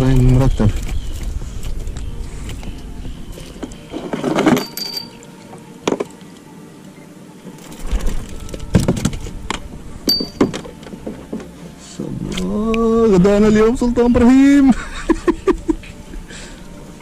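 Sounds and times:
clattering: 3.9 - 5.2, 7.6 - 11.5.

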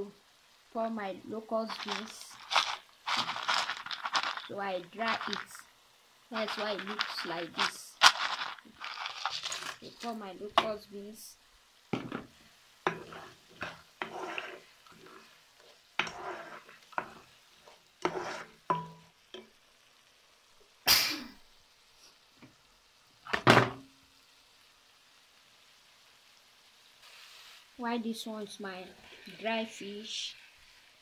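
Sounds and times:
spatula scraping a pan: 12.9 - 19.0.

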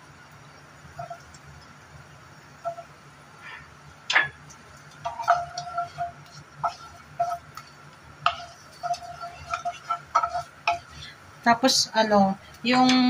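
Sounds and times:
spatula scraping frying pan: 1.0 - 1.3, 2.6 - 3.0, 4.7 - 11.3.

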